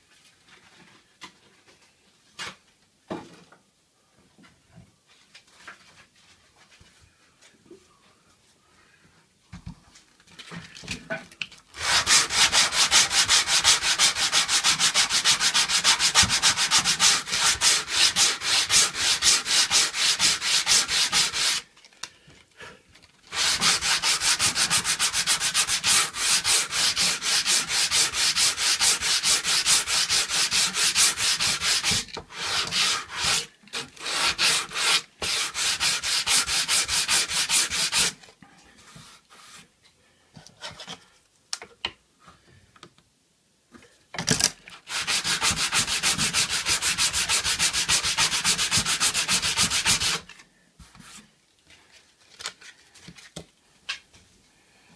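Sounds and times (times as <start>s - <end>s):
sandpaper sanding wood: 11.8s - 21.6s, 23.3s - 38.2s, 44.9s - 50.3s.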